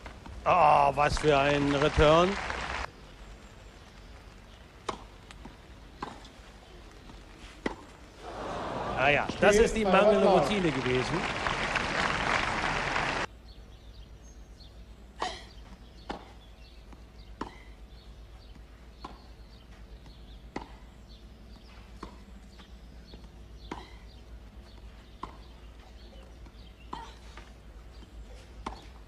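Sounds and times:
crowd applause: 0:00.9 - 0:02.9, 0:08.2 - 0:13.3
tennis racket hitting ball: 0:20.2 - 0:20.8.

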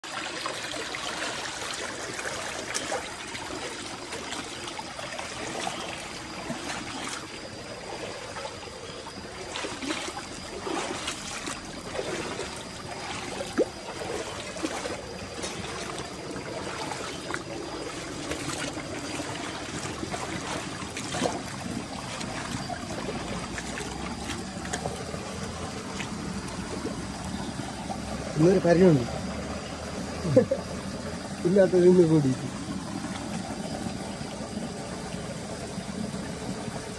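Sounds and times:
feet wading through water: 0:00.0 - 0:36.9
stream running over rocks: 0:00.0 - 0:36.9
sharp splashes and knocks: 0:01.0 - 0:08.5, 0:09.3 - 0:27.4.

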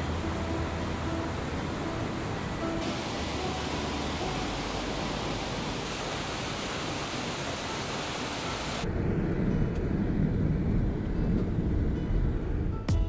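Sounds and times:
waterfall rushing: 0:00.0 - 0:08.9
car driving on wet road: 0:00.1 - 0:08.8.

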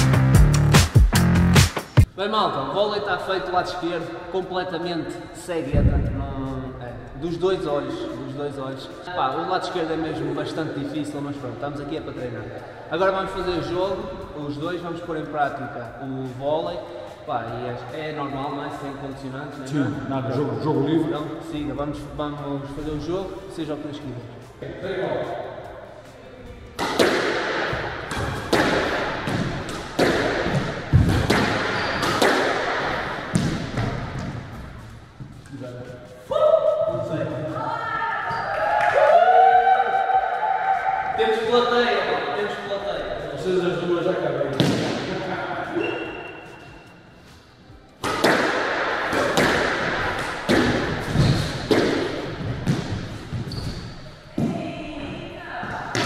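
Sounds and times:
squash ball hits echoing: 0:26.8 - 0:34.8, 0:44.5 - 0:45.3, 0:48.0 - 0:53.6, 0:54.3 - 0:54.7.

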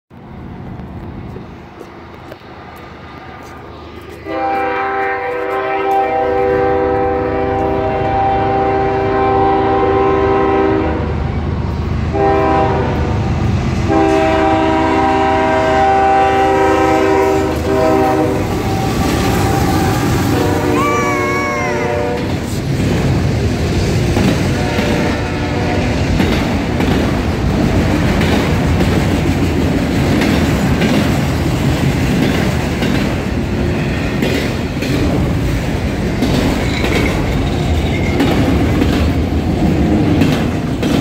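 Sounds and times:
locomotive rumble: 0:00.1 - 0:41.0
locomotive air horn: 0:04.2 - 0:11.2, 0:12.1 - 0:13.2, 0:13.8 - 0:22.5, 0:24.5 - 0:26.1.

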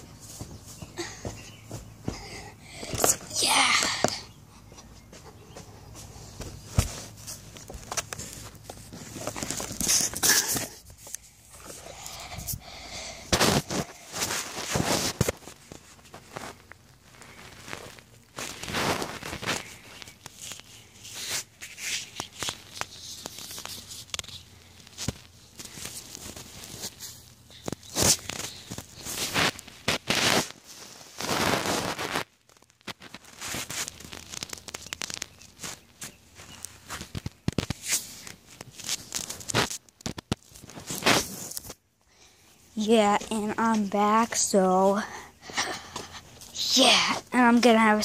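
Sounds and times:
cloth rubbing over microphone: 0:13.4 - 0:16.6, 0:17.2 - 0:24.1, 0:27.9 - 0:32.3.

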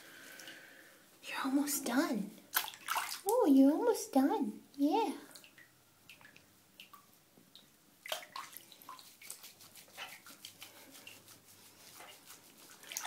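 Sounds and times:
bath water splashing and dripping: 0:02.4 - 0:03.6, 0:05.2 - 0:13.0
hand rubbing wet fur: 0:08.3 - 0:13.0.

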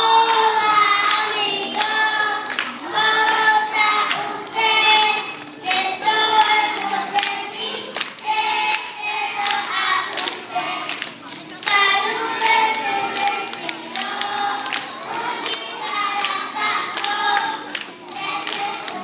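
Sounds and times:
children singing in unison: 0:00.0 - 0:19.0.

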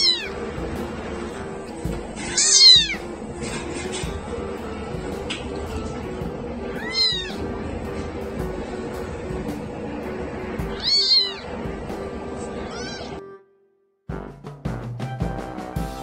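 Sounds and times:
kitten mewing: 0:00.0 - 0:00.4, 0:02.2 - 0:03.1, 0:06.7 - 0:07.4, 0:10.6 - 0:11.5, 0:12.4 - 0:13.2
background music: 0:00.0 - 0:16.0.

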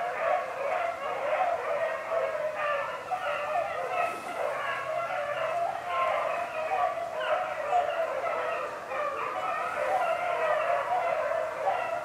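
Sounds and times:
hounds baying: 0:00.0 - 0:12.0.

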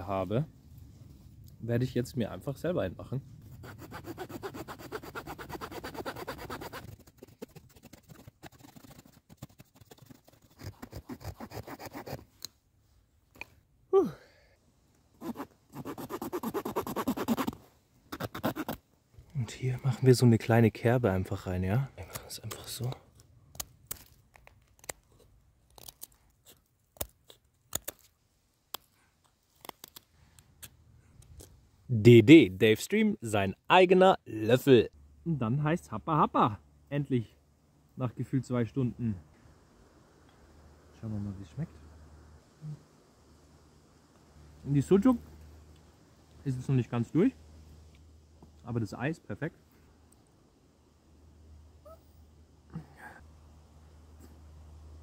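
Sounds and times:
knife shaving wooden stick: 0:03.8 - 0:12.2.

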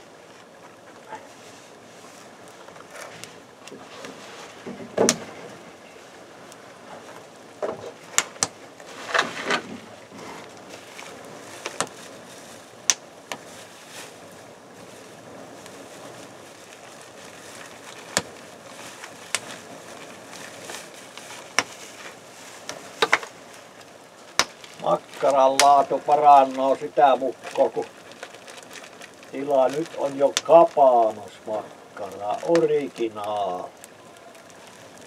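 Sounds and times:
campfire hissing: 0:00.0 - 0:35.0
fire crackling pops: 0:00.0 - 0:35.0
rustling knocks: 0:02.9 - 0:05.7, 0:06.9 - 0:11.0.

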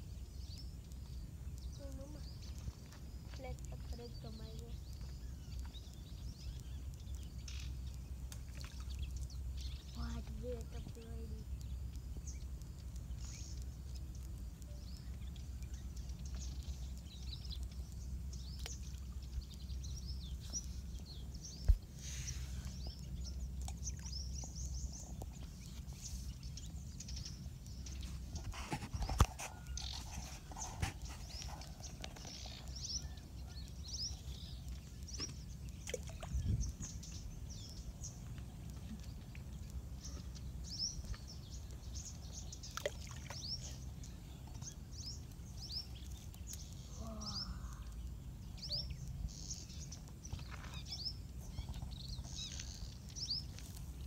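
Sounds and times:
birds chirping: 0:00.0 - 0:54.0.

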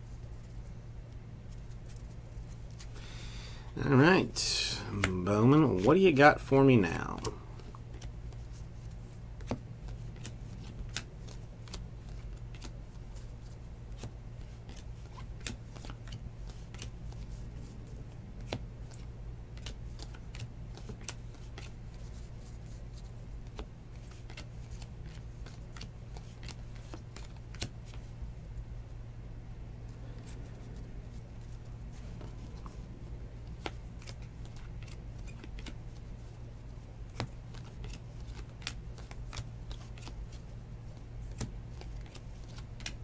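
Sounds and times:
steady low hum: 0:00.0 - 0:43.0
cards flipping by hand: 0:04.3 - 0:06.1, 0:07.0 - 0:17.7, 0:18.4 - 0:28.1, 0:33.4 - 0:43.0.

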